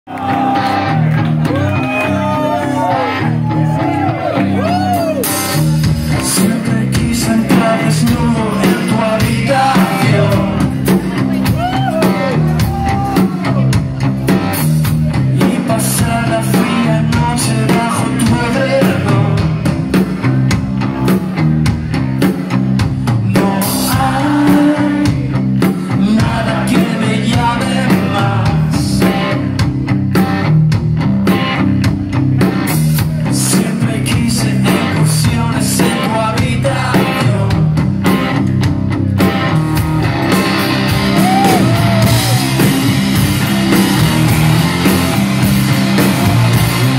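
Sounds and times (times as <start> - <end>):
drum kit: 0.1 - 46.9
electric guitars: 0.1 - 46.9
person singing: 1.5 - 13.8, 15.2 - 19.7, 23.2 - 29.4, 33.2 - 37.8.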